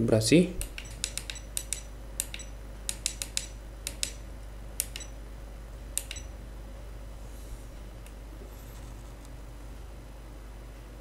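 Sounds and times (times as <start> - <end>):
push buttons clicking: 0.6 - 4.2, 4.8 - 5.2, 6.0 - 6.3.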